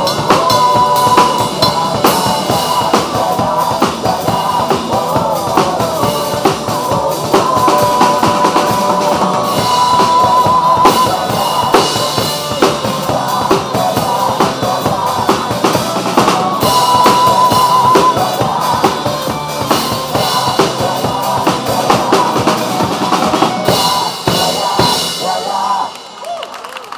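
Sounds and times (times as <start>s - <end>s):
acoustic drum kit played hard: 0.0s - 26.2s
pop-rock backing music: 0.0s - 26.2s.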